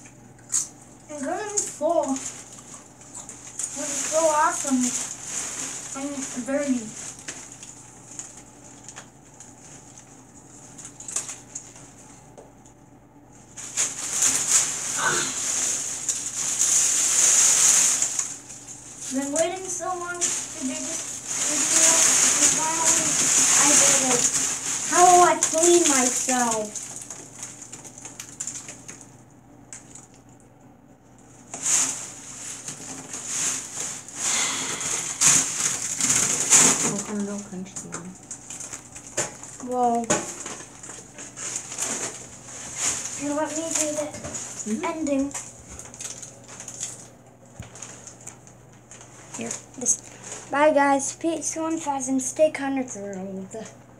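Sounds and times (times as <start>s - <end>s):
potato chips crunching: 0.4s - 12.3s, 13.5s - 30.3s, 38.2s - 50.5s.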